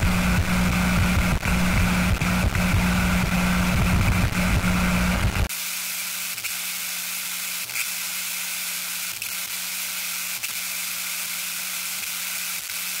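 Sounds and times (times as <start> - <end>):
glitchy crackles: 0.0 - 5.5
low steady hum: 0.0 - 5.5
tv static hiss: 0.0 - 13.0.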